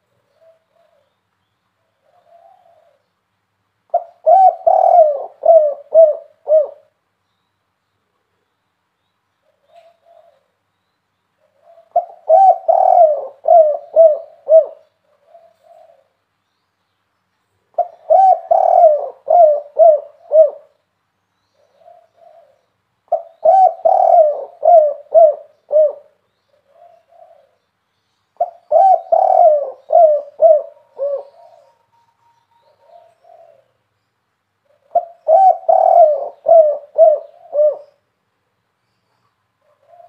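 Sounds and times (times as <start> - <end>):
dove cooing: 0.0 - 1.2, 1.8 - 3.1, 3.9 - 7.0, 9.4 - 10.6, 11.4 - 16.2, 17.7 - 20.8, 21.6 - 27.6, 28.4 - 33.9, 34.6 - 38.0, 39.6 - 40.0.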